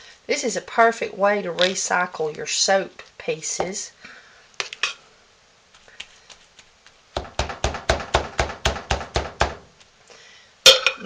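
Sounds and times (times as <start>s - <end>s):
metal spoon clinking on crock: 10.7s - 11.0s.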